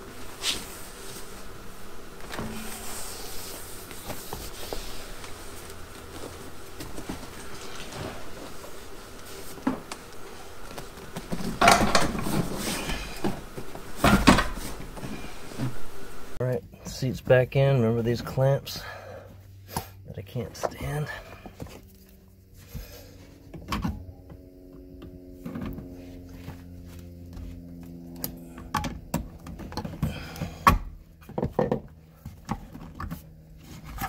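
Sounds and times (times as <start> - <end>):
upholstery rustling: 0.0 - 16.4
thumps and scraping: 0.2 - 16.2.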